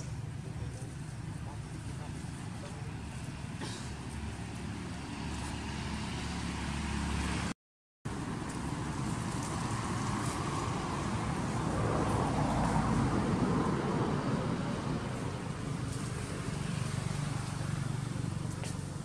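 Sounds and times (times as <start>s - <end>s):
low outdoor rumble: 0.0s - 6.4s.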